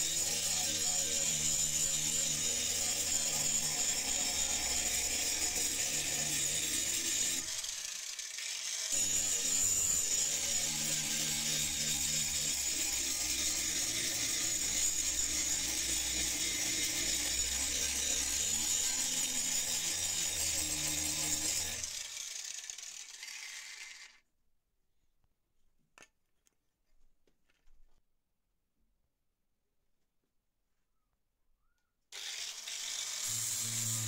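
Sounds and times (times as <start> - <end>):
angle grinder grinding steel: 0.0 - 24.2, 32.2 - 34.0.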